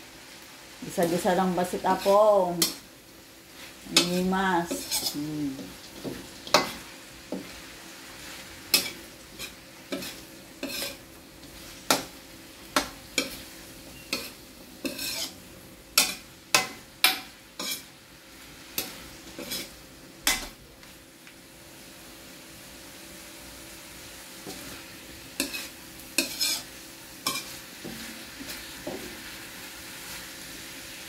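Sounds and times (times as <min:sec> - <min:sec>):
light sizzle: 0:00.0 - 0:31.0
metal spatula scraping a wok: 0:01.8 - 0:02.9, 0:03.5 - 0:07.6, 0:08.2 - 0:12.1, 0:12.8 - 0:18.0, 0:18.6 - 0:20.5, 0:24.4 - 0:30.4.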